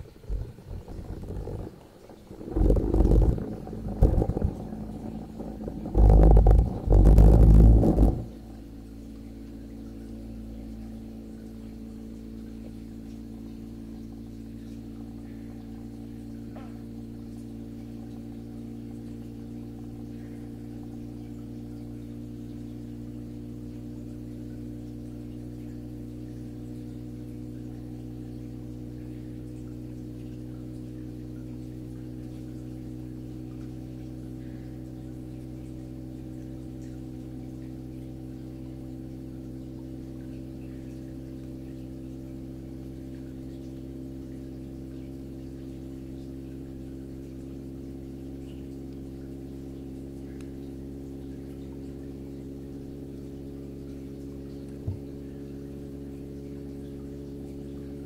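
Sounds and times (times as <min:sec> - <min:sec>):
moth flapping against microphone: 0:00.0 - 0:08.7
steady low hum: 0:00.0 - 0:58.0.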